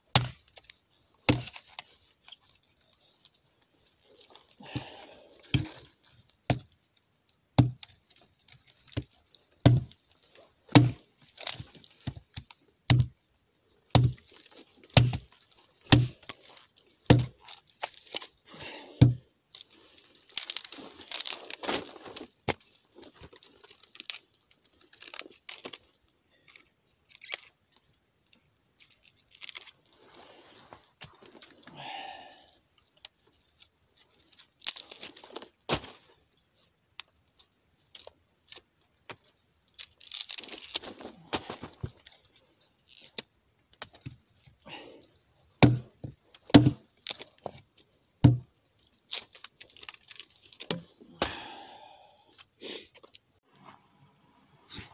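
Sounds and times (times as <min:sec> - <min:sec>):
axe chopping wood: 0:00.1 - 0:00.4, 0:01.3 - 0:01.6, 0:07.6 - 0:07.9, 0:09.0 - 0:10.0, 0:10.7 - 0:13.2, 0:13.9 - 0:14.2, 0:15.0 - 0:15.3, 0:15.9 - 0:16.3, 0:17.1 - 0:18.0, 0:19.0 - 0:19.2, 0:45.6 - 0:46.8, 0:48.2 - 0:48.5, 0:50.6 - 0:51.6.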